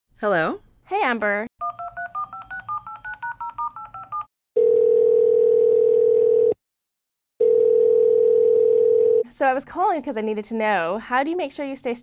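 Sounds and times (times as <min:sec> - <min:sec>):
telephone keypad beeps: 0:01.6 - 0:04.8
telephone ringing tone: 0:01.6 - 0:06.6, 0:07.4 - 0:09.2.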